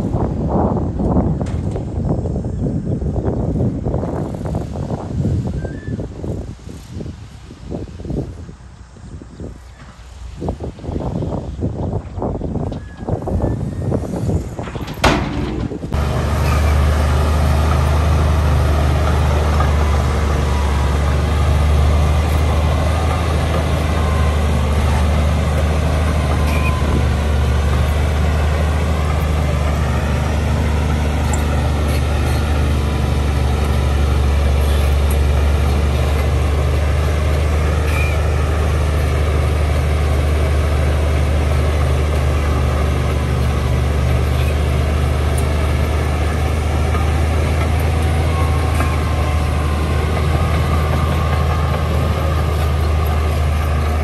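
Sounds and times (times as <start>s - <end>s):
bulldozer diesel engine running: 11.8s - 54.0s.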